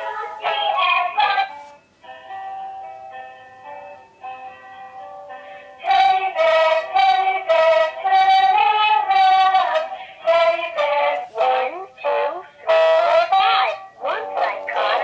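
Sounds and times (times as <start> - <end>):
toy singing in electronic voice: 5.8 - 15.0.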